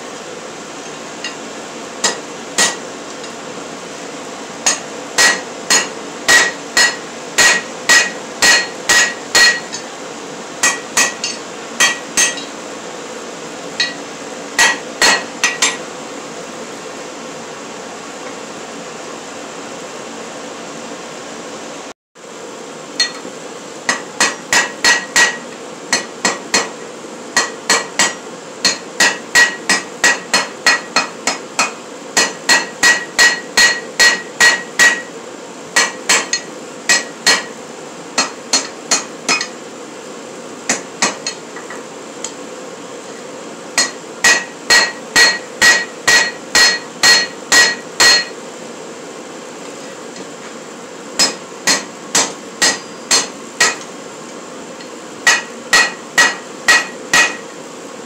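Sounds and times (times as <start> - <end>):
steady background noise: 0.0 - 58.0
hammer ringing on anvil: 2.0 - 2.8, 4.7 - 9.9, 10.6 - 12.5, 13.8 - 14.0, 14.6 - 15.8, 27.4 - 35.1, 35.8 - 37.6, 43.8 - 48.4, 51.2 - 53.9, 54.8 - 57.5.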